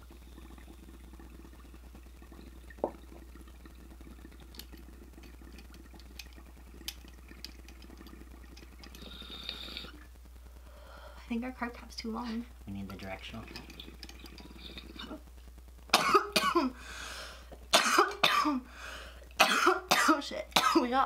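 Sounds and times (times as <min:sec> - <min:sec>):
water bubbling through glass pipe: 0:00.0 - 0:10.1, 0:13.2 - 0:15.2.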